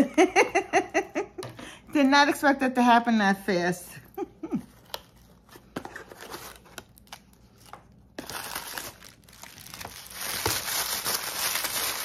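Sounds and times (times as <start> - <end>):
cardboard packaging clicks and rustles: 4.7 - 12.0
tissue paper crinkling: 5.1 - 12.0.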